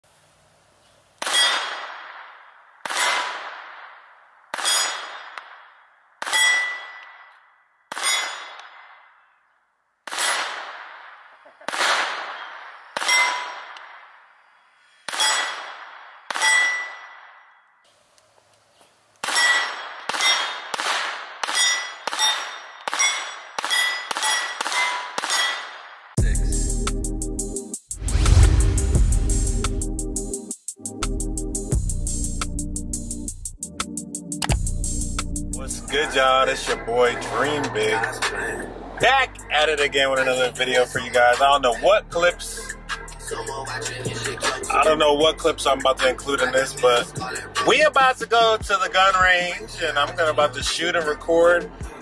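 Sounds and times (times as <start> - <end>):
steel targets ringing: 1.2 - 1.8, 4.6 - 5.4, 6.2 - 9.3, 12.3 - 13.8, 16.3 - 17.6, 19.3 - 20.7, 21.4 - 25.8
pistol shots: 1.2 - 7.3, 7.9 - 9.2, 10.0 - 14.1, 15.1 - 17.4, 19.2 - 26.1.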